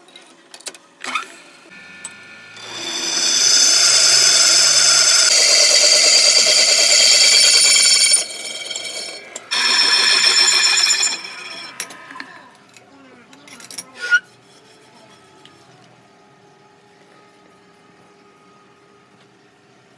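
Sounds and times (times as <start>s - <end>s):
drill boring into metal screeching: 2.5s - 12.0s.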